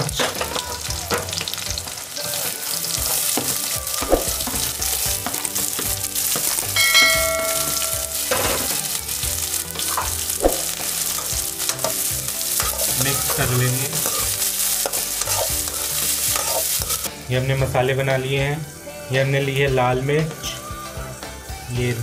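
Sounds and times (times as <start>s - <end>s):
metal spatula scraping a pan: 0.0s - 17.1s
onions sizzling in hot oil: 0.0s - 19.6s
ringing chime: 6.8s - 8.8s.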